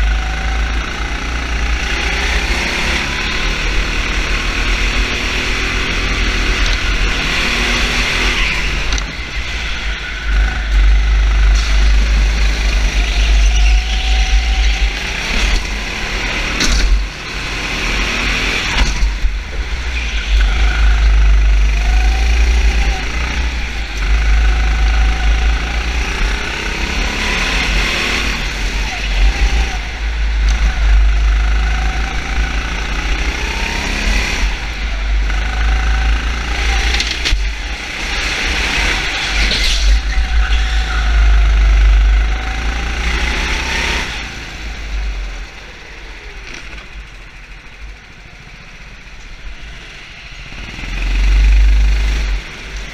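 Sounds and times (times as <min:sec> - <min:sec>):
racing engine revving: 0:00.0 - 0:52.9.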